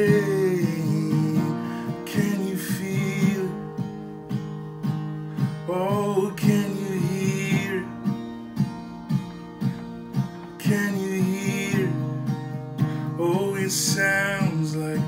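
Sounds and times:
person singing: 0.0s - 3.6s, 5.6s - 8.0s, 10.6s - 12.0s, 13.0s - 15.0s
acoustic guitar strumming: 0.0s - 15.0s.

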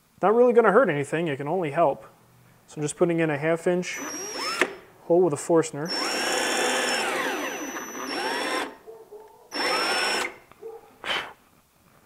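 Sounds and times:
cordless drill boring into wood: 3.9s - 4.8s, 5.9s - 8.8s, 9.5s - 10.4s.

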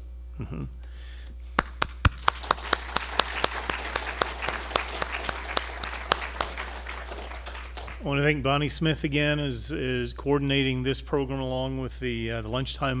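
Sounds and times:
sharp close claps: 1.6s - 8.1s
audience applauding: 1.6s - 8.3s.

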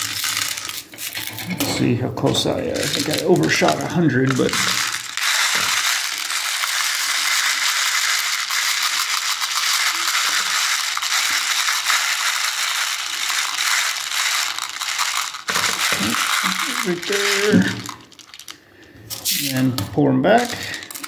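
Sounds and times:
pellets rattling in plastic box: 0.0s - 1.5s, 2.3s - 18.6s, 20.3s - 21.0s.

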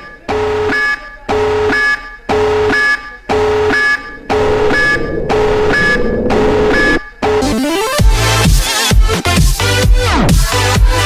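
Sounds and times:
pulsing electronic alarm tone: 3.3s - 7.7s.

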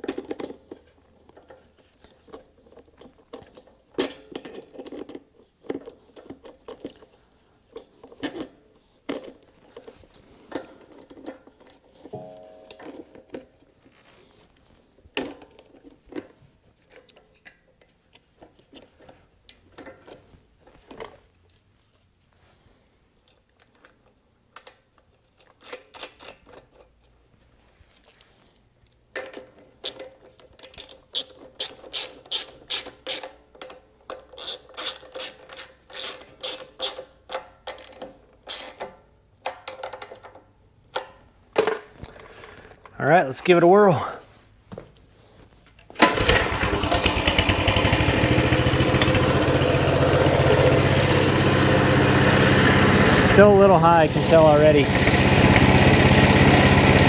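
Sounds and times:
rapid ratcheting clicks: 34.4s - 37.0s.

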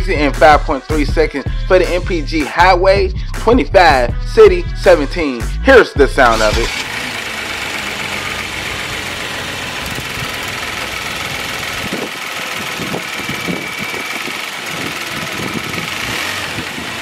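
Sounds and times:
car engine idling: 6.3s - 17.0s.

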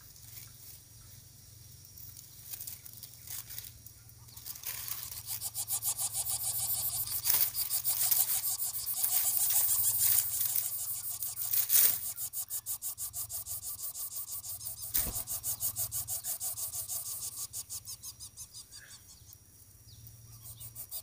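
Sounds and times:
nestlings rasping breathing: 4.9s - 18.9s
sharp click: 14.6s - 15.7s.

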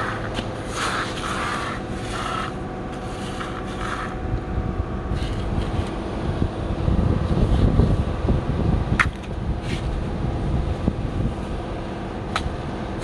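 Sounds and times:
toy trucks scraping through sand: 0.0s - 4.2s
low rumble: 0.0s - 13.0s.

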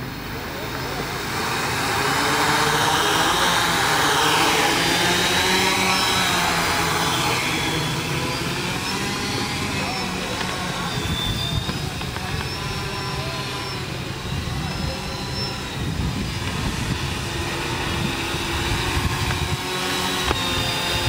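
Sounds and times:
drone propeller motors whining: 0.0s - 21.0s
steady low rumble: 4.7s - 20.8s.

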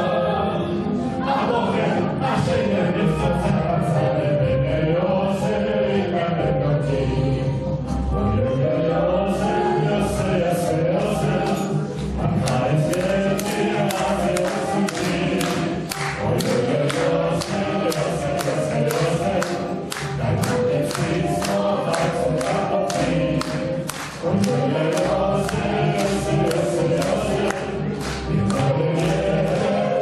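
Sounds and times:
choir singing: 0.0s - 30.0s
audience clapping in time: 12.4s - 30.0s.

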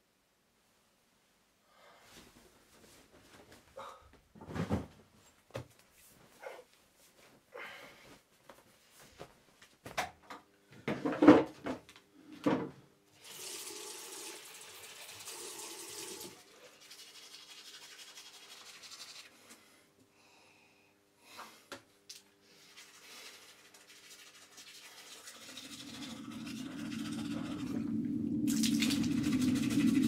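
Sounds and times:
thumps and rustles: 4.3s - 6.3s
sink tap running: 13.2s - 16.3s, 28.5s - 30.0s.

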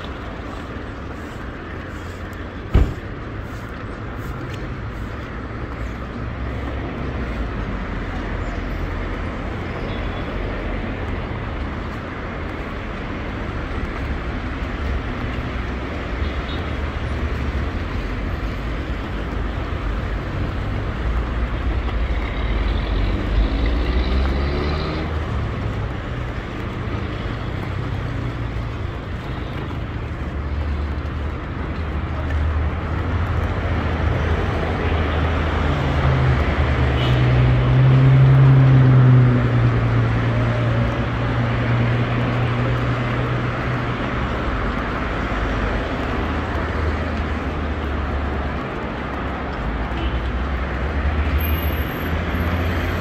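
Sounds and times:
traffic rumble: 0.0s - 53.0s
vehicle engine accelerating: 22.4s - 25.8s.

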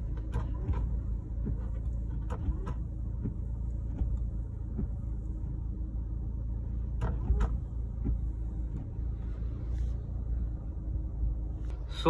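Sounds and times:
car interior rumble: 0.0s - 12.0s
windshield wipers sweeping: 0.0s - 12.0s.

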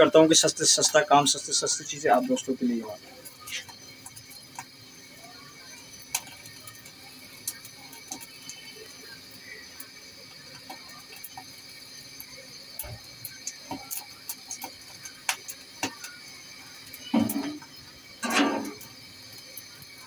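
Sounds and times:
chicken feet crackling in flame: 0.0s - 20.0s.

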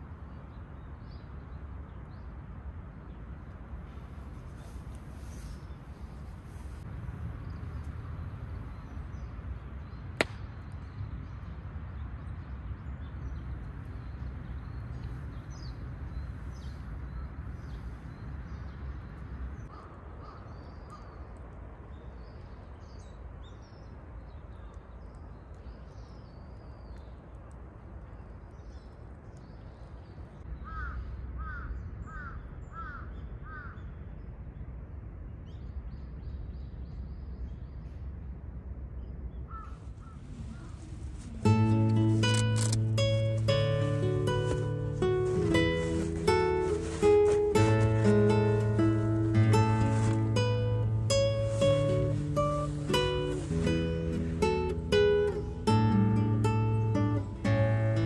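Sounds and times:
crow cawing: 19.7s - 21.1s, 30.6s - 33.8s, 39.5s - 40.8s
small birds chirping: 39.0s - 58.0s.

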